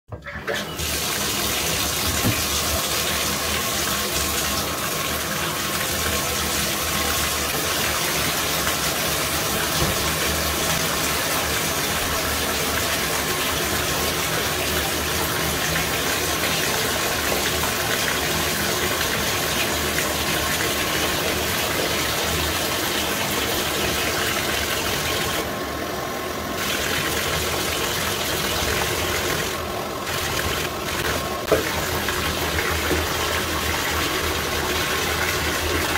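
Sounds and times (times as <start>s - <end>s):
bathtub tap running: 0.1s - 25.5s, 26.6s - 35.9s
water splashing onto tub floor: 1.7s - 3.1s.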